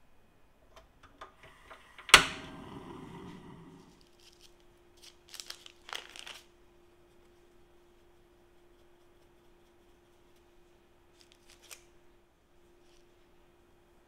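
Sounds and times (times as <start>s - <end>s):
parchment paper rustling: 3.3s - 12.0s.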